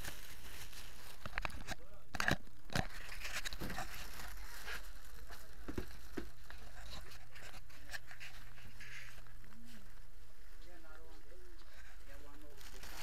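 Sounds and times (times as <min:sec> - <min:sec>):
camera rustling and handling: 0:00.0 - 0:09.6
low electrical hum: 0:00.0 - 0:13.0.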